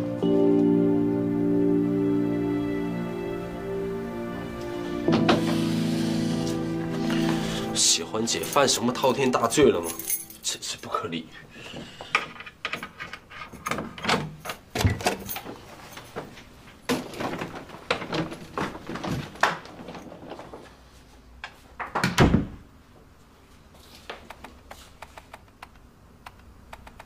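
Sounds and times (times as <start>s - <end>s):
door shutting thud: 5.0s - 5.7s.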